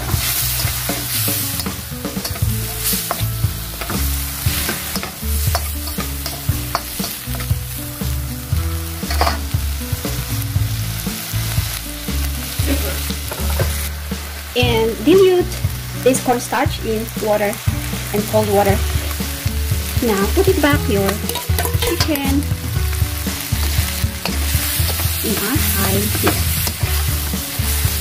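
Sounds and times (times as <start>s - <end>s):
onion sizzling in a hot pan: 0.0s - 28.0s
utensil clicking against pan: 0.1s - 7.6s, 9.0s - 9.5s, 21.1s - 22.4s, 23.6s - 28.0s.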